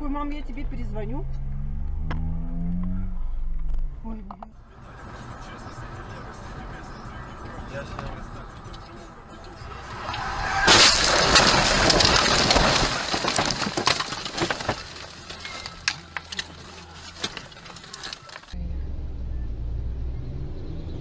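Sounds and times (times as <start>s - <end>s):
engine and road hum inside car: 0.1s - 10.3s, 18.5s - 21.0s
branches scraping car body: 9.5s - 18.6s
debris clicks and rattles: 10.1s - 18.6s.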